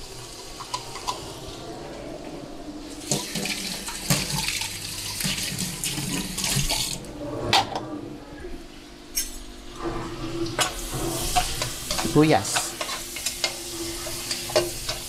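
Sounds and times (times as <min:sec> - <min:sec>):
onion sizzling in a pan: 0:10.6 - 0:15.0.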